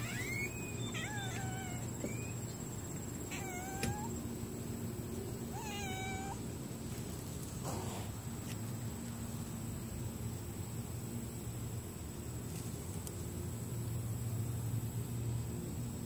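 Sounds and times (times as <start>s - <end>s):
cat meowing: 0.0s - 2.4s, 3.3s - 4.2s, 5.5s - 6.4s.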